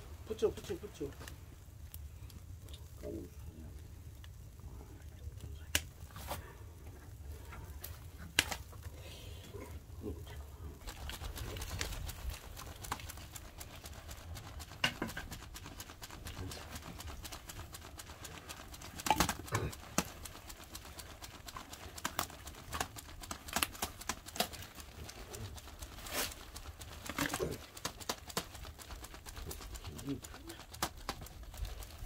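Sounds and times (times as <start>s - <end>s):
low steady rumble: 0.0s - 32.0s
irregular clicks and knocks: 10.9s - 32.0s.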